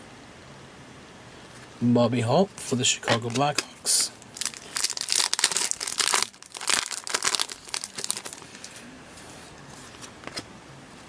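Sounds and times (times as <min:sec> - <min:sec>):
foil wrapper tearing and crinkling: 0:04.2 - 0:08.8.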